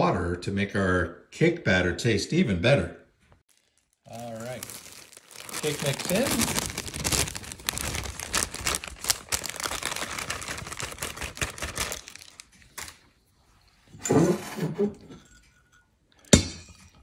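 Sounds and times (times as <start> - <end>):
plastic bag crinkling: 3.5 - 13.0.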